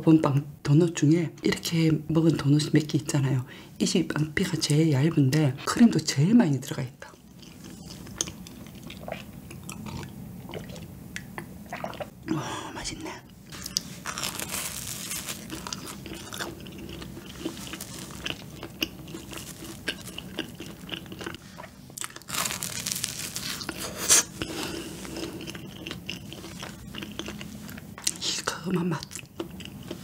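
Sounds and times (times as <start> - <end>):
biting and chewing donut: 13.6 - 28.2.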